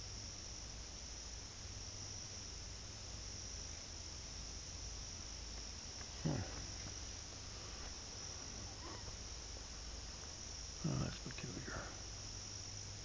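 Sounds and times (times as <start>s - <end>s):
chorus of crickets: 0.0s - 13.0s.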